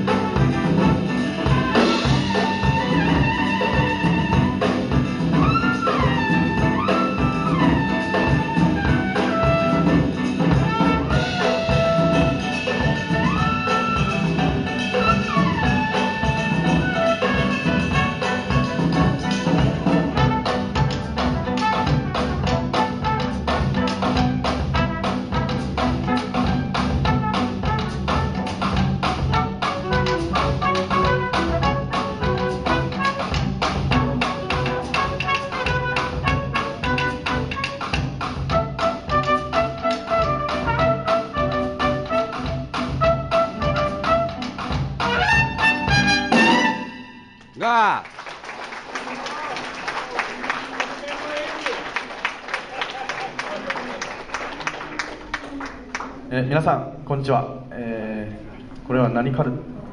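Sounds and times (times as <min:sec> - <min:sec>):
horn playing sliding melody: 0:00.0 - 0:23.6, 0:29.2 - 0:47.6
jazz group playing live: 0:00.0 - 0:47.6
piano: 0:00.0 - 0:47.6
bass: 0:00.0 - 0:48.1, 0:55.2 - 0:59.9.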